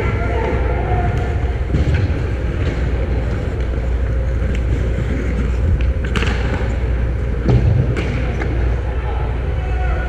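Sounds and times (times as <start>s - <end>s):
hockey sticks and puck clicks: 0.4s - 8.8s
skates scraping ice: 1.7s - 7.8s.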